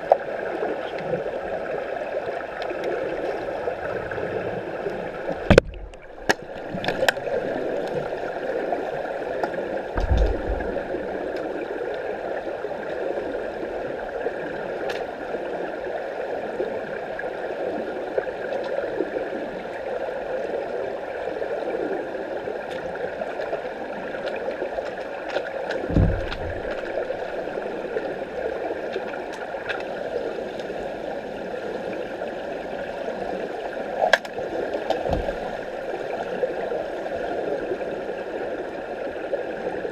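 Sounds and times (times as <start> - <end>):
underwater rushing noise: 0.0 - 39.9
low underwater thuds: 5.2 - 7.2, 9.9 - 11.5, 25.8 - 28.1, 35.0 - 35.9
sharp underwater clicks: 5.3 - 8.2, 34.1 - 35.7.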